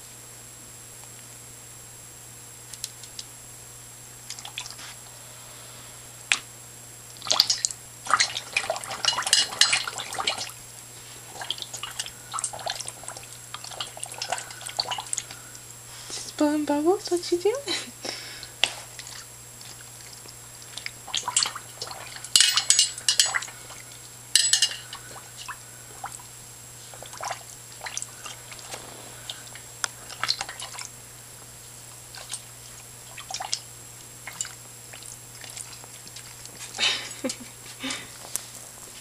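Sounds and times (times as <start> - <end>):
dog bubbling water in bowl: 4.2 - 4.8, 7.1 - 15.6, 18.4 - 31.0, 31.7 - 37.6.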